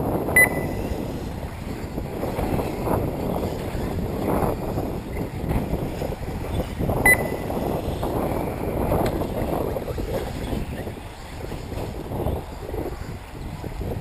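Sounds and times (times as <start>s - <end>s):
wind buffeting microphone: 0.0s - 14.0s
short high electronic beep: 0.4s - 0.8s, 7.1s - 7.5s.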